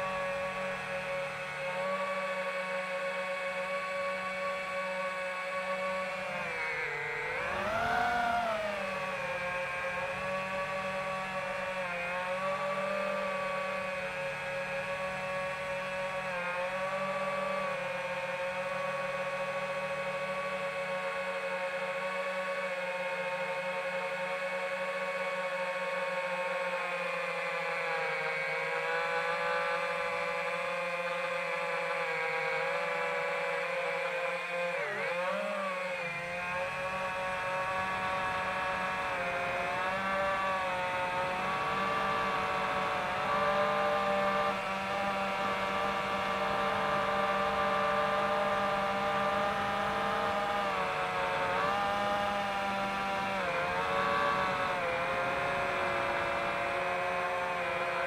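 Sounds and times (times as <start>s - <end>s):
quadcopter motors whining: 0.0s - 58.0s.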